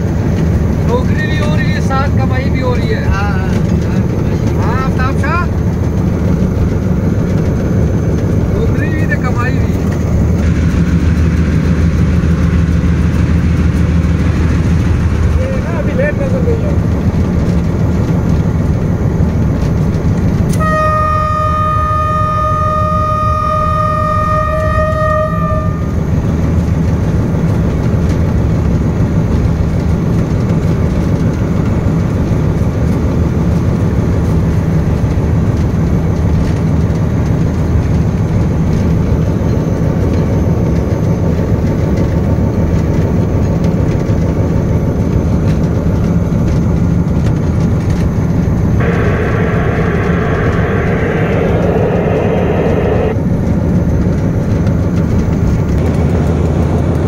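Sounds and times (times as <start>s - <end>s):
diesel locomotive engine drone: 0.0s - 57.0s
loud high-pitched sound: 48.8s - 53.2s.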